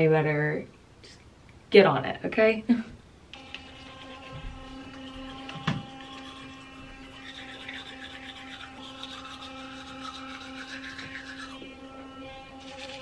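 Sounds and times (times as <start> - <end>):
electric toothbrush humming: 3.3 - 13.0
toothbrush scrubbing teeth: 3.4 - 11.8, 12.4 - 13.0.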